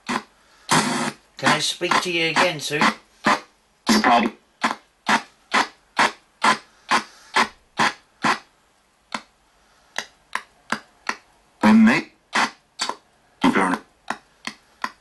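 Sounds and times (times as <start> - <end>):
chopped radio broadcast bursts: 0.0 - 8.5, 10.7 - 14.2.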